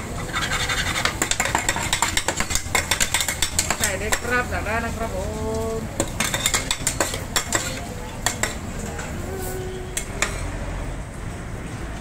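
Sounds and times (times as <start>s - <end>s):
metal spatulas clinking on griddle: 0.2s - 4.5s, 6.0s - 9.1s.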